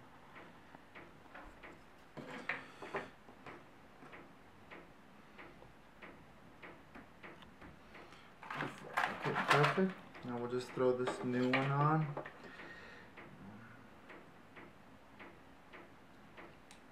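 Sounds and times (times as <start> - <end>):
faint regular ticking: 0.1 - 8.5, 9.7 - 16.9.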